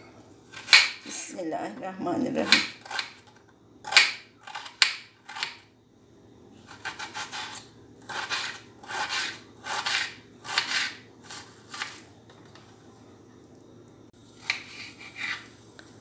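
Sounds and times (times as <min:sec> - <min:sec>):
knife slicing onion on cutting board: 0:00.5 - 0:01.0, 0:02.4 - 0:05.7, 0:06.6 - 0:12.0, 0:14.4 - 0:15.5.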